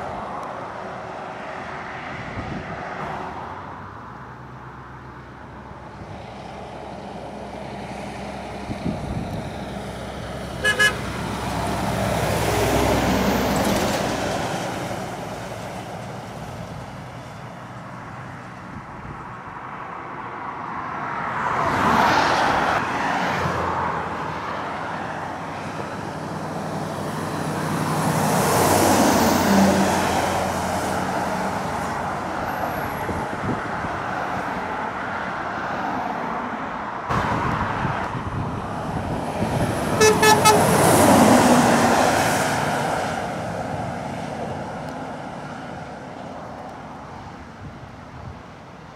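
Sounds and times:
lorry diesel engines working hard: 3.6s - 21.3s, 23.7s - 35.5s, 36.8s - 48.9s
truck horn toot: 10.6s - 11.2s, 40.0s - 40.9s.

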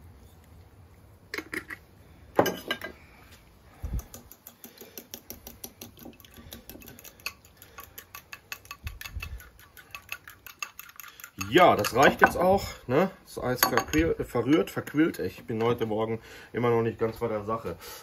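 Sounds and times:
fork beating eggs in a bowl: 3.8s - 12.6s, 13.8s - 15.8s.

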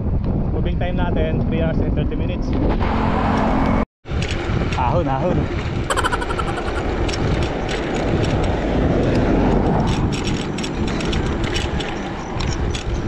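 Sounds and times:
wind rushing over microphone: 0.0s - 13.0s
road traffic noise: 2.5s - 13.0s.

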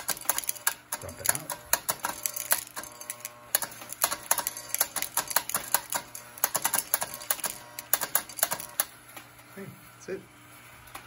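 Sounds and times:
toy conveyor clattering: 0.0s - 8.9s.

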